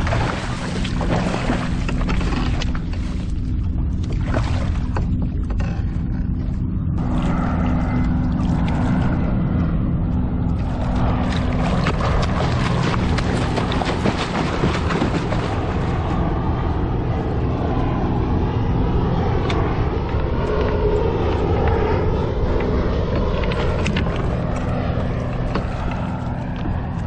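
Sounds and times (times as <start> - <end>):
fish splashing at water surface: 0.0 - 3.2, 10.6 - 16.2
steady low rumble: 0.0 - 27.0.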